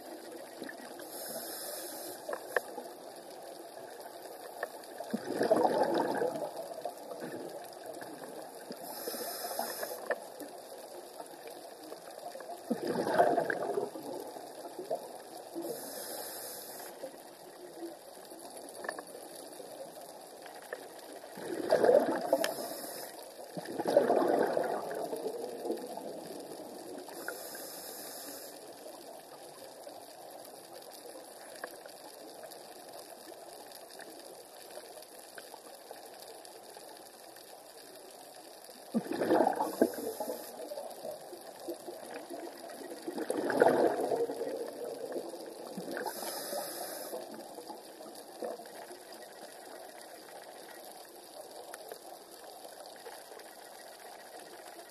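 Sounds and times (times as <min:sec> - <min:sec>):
regulator inhalation hiss: 0:01.0 - 0:02.8, 0:08.8 - 0:10.3, 0:15.6 - 0:17.1, 0:22.3 - 0:23.4, 0:27.1 - 0:29.0, 0:39.7 - 0:40.9, 0:46.0 - 0:47.5
exhaled bubbles rumbling: 0:04.9 - 0:08.7, 0:12.0 - 0:15.5, 0:20.6 - 0:22.7, 0:23.5 - 0:27.2, 0:38.8 - 0:46.3.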